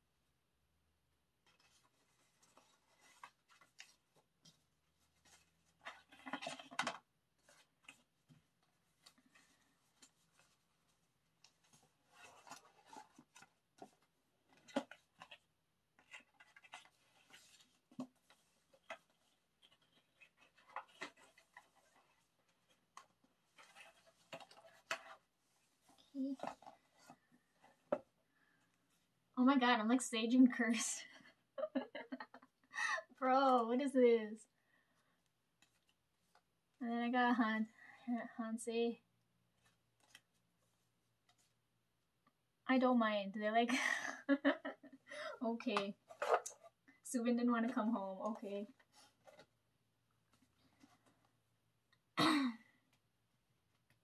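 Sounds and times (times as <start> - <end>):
paper and cardboard rustling: 1.4 - 28.2, 45.6 - 46.8, 47.6 - 49.6.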